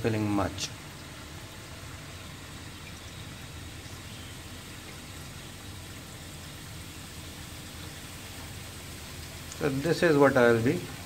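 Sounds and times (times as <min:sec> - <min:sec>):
low pump hum: 0:00.0 - 0:11.0.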